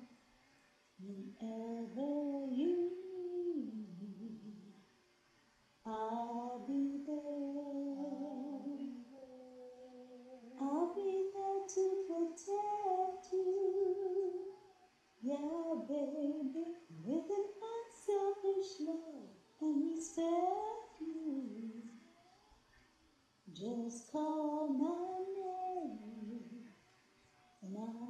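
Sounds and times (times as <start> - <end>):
woman humming melody: 1.0 - 4.8, 5.9 - 22.0, 23.5 - 26.7.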